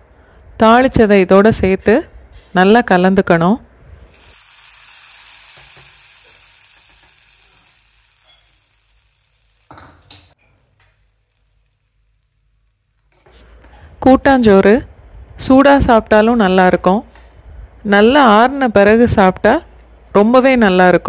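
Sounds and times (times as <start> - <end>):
hot oil sizzling on rice: 4.0 - 13.2.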